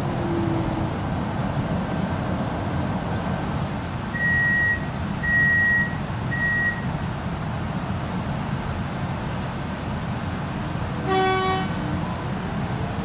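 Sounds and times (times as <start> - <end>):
low train carriage rumble: 0.0 - 13.0
train door warning beeps: 4.2 - 6.9.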